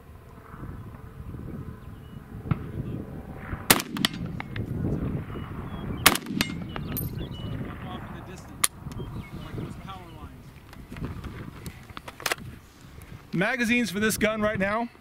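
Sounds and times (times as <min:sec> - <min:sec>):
faint gunshot echo: 0:03.7 - 0:04.5, 0:06.0 - 0:06.9
rifle shots: 0:03.7 - 0:04.5, 0:06.0 - 0:07.1.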